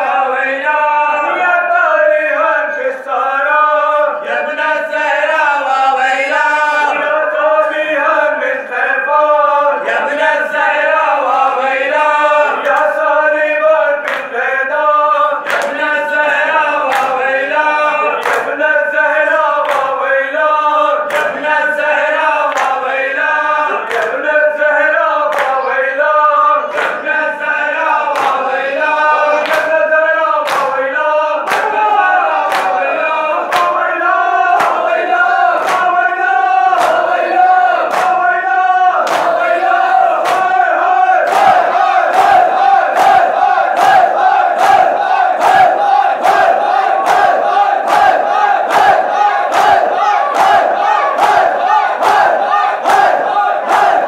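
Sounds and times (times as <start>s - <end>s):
men chanting a lament: 0.0s - 54.0s
hand slaps on bare chests: 15.5s - 15.8s, 30.4s - 30.8s, 35.6s - 35.9s, 37.9s - 38.2s, 39.0s - 39.4s, 40.2s - 40.6s.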